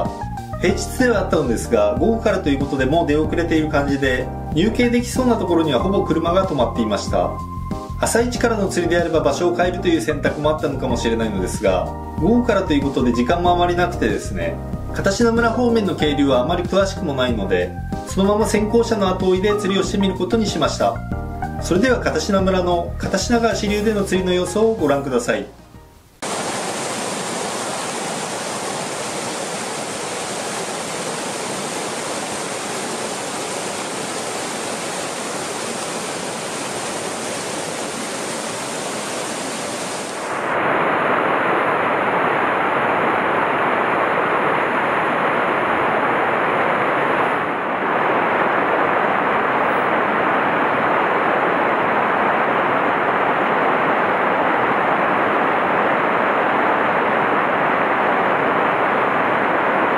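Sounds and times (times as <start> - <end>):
stream rushing over rocks: 26.2 - 59.9.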